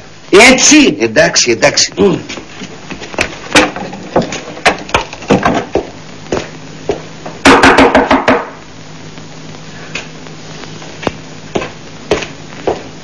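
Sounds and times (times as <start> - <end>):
steady low hum: 0.0 - 13.0
wooden knocks and bumps: 3.5 - 5.9
knocking on wooden door: 7.5 - 8.5.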